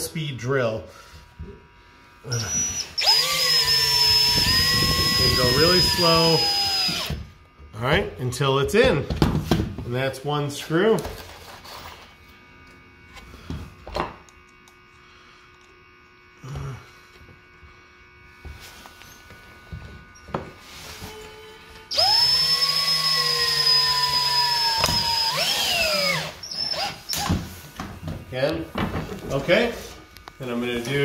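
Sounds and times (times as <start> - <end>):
cordless drill whining: 2.1 - 7.4, 18.9 - 27.5.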